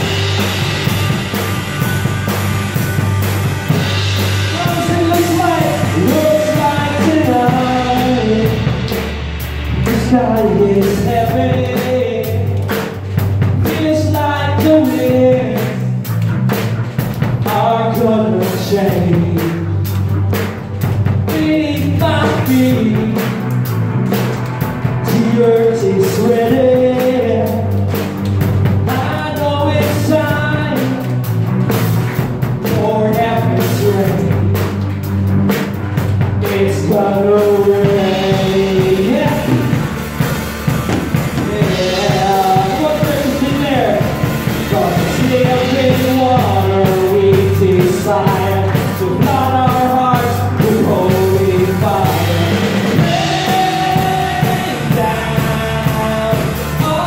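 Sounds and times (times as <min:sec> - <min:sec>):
drum kit playing: 0:00.0 - 0:57.0
keyboard: 0:00.0 - 0:57.0
person singing melody: 0:03.9 - 0:13.0, 0:36.4 - 0:40.0, 0:40.9 - 0:57.0.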